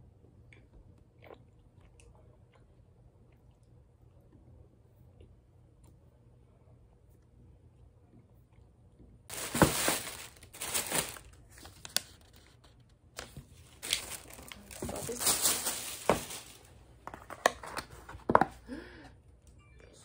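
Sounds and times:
plastic bag and paper crinkling: 0:09.3 - 0:18.0.

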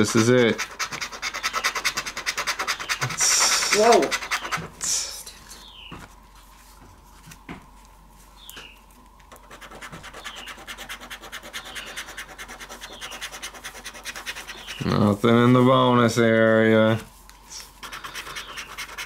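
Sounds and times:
lottery ticket being scratched: 0:00.0 - 0:04.8, 0:09.4 - 0:15.6, 0:17.8 - 0:19.0.

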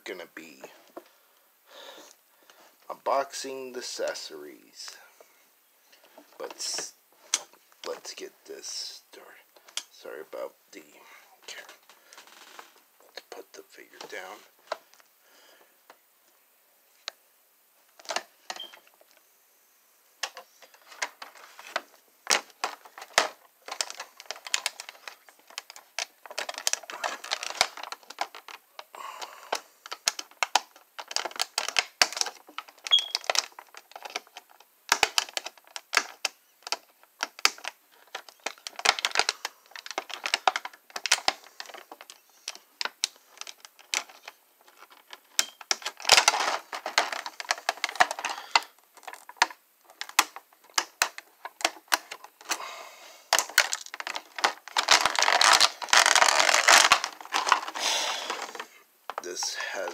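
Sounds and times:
plastic packaging crinkling: 0:17.9 - 0:19.2, 0:20.2 - 0:52.6, 0:53.3 - 0:59.9.

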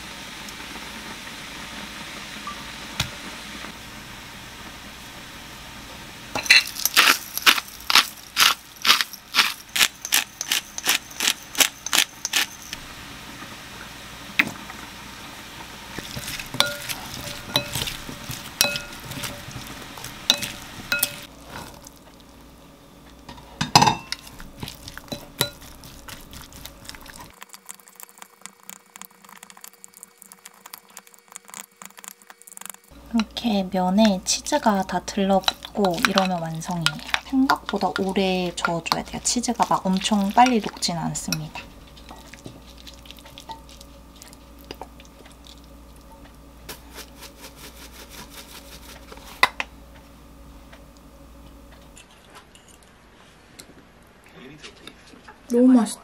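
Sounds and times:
utensils knocking on glass bowl: 0:16.0 - 0:19.7, 0:20.3 - 0:21.3, 0:23.6 - 0:24.3, 0:35.4 - 0:39.1.

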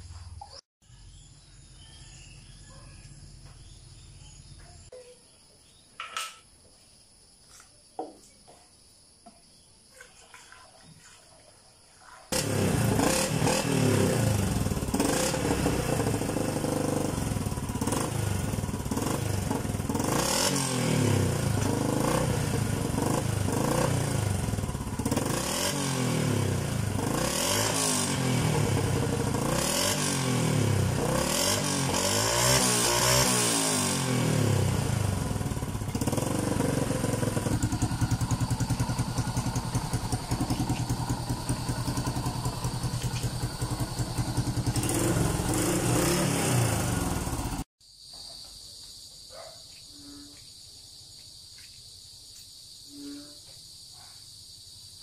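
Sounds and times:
motorcycle engine revving: 0:12.3 - 0:47.7
motorcycle engine idling: 0:12.4 - 0:32.1, 0:33.9 - 0:47.7.

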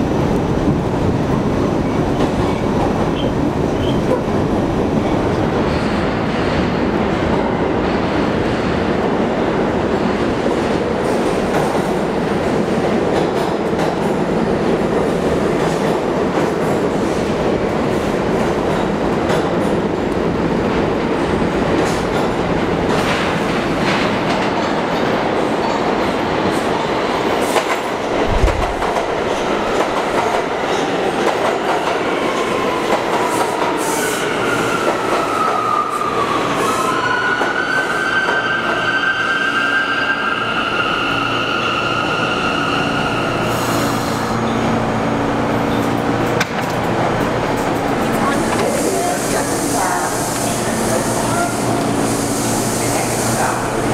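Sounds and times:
train wheels rumbling on rails: 0:00.0 - 0:53.9
low thump: 0:28.1 - 0:30.4.

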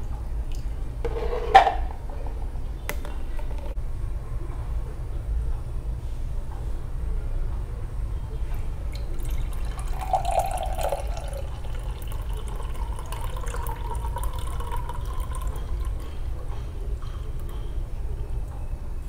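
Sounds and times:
smoothie pouring into a glass: 0:09.0 - 0:16.0.

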